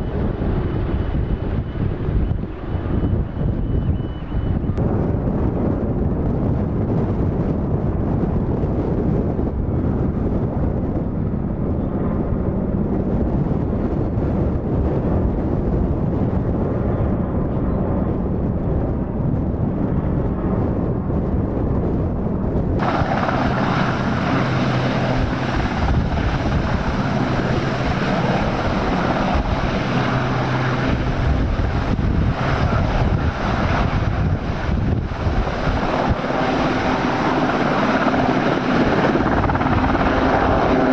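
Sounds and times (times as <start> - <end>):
distant helicopter rotor: 0.0 - 40.9
helicopter turbines and rotor hovering: 0.0 - 40.9
wind on microphone: 0.0 - 40.9
steady low hum: 22.2 - 40.9.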